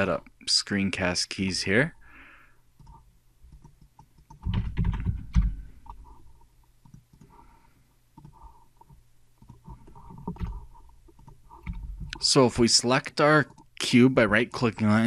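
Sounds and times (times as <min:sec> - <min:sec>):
mouse clicks: 0:02.8 - 0:04.5, 0:05.8 - 0:07.4
computer keyboard typing: 0:02.8 - 0:06.2, 0:06.8 - 0:07.4, 0:08.2 - 0:12.3, 0:13.2 - 0:13.9.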